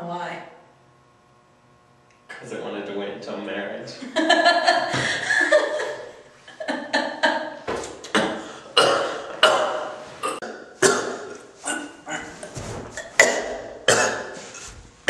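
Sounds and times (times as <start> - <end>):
man laughing in gulping bursts: 4.1 - 7.4
man choking and gagging: 8.0 - 14.4.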